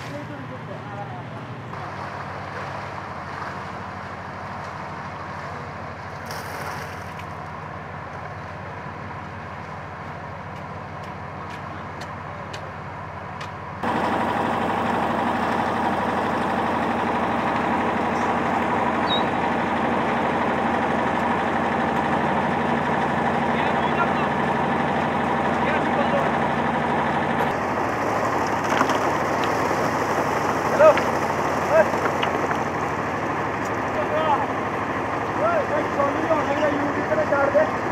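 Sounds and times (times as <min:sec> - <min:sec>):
concrete mixer engine running: 0:00.0 - 0:37.9.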